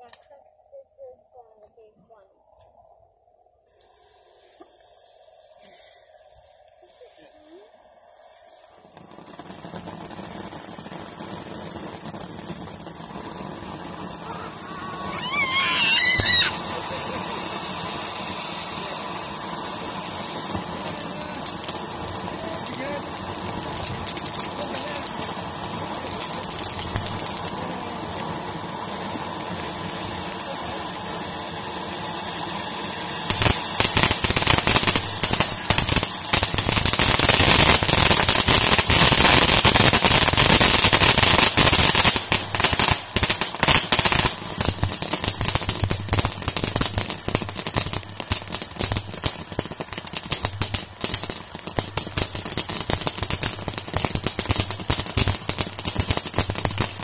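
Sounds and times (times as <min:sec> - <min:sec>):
firework cracks and pops: 0:00.0 - 0:00.5, 0:08.5 - 0:57.0
firework fountain hissing: 0:00.0 - 0:02.2, 0:03.6 - 0:57.0.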